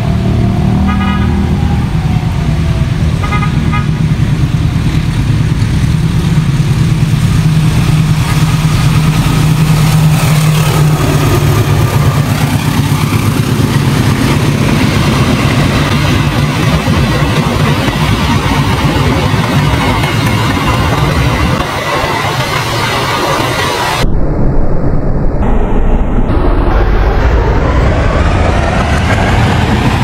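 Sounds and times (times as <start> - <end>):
diesel locomotive engine drone: 0.0 - 30.0
train horn toots: 0.8 - 1.7, 3.2 - 4.1.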